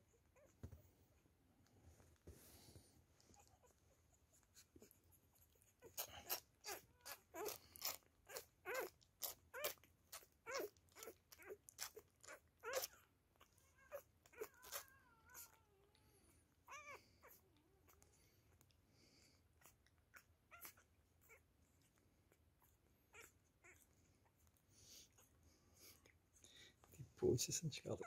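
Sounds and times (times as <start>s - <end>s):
puppy whimpering: 3.2s - 18.6s, 19.6s - 25.9s.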